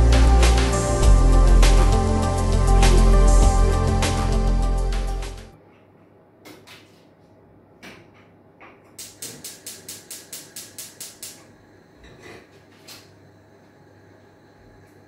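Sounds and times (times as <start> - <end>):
rapid sharp clicks: 9.0 - 11.4.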